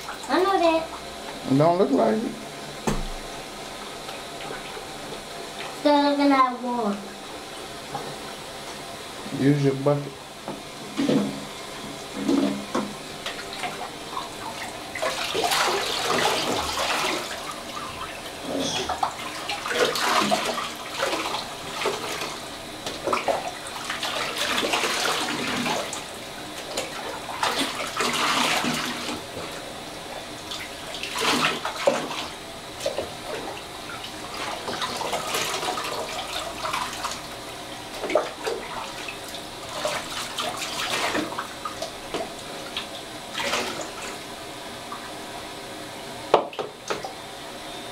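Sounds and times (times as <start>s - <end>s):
water sloshing and pouring: 10.9s - 29.7s, 30.4s - 44.3s.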